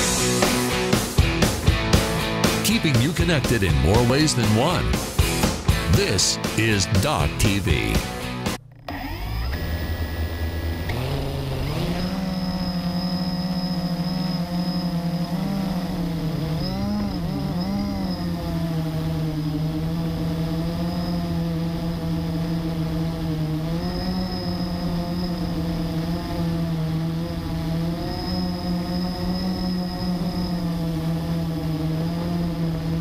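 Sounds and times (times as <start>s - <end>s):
quadcopter motors and propellers: 8.8s - 33.0s.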